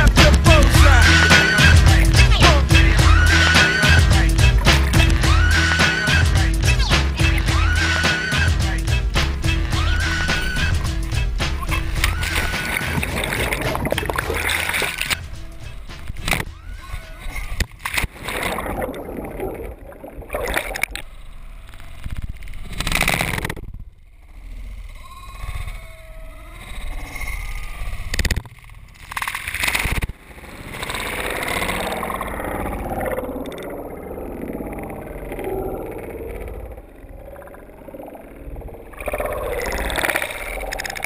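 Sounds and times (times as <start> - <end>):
underwater gurgling and sloshing: 9.4 - 41.0.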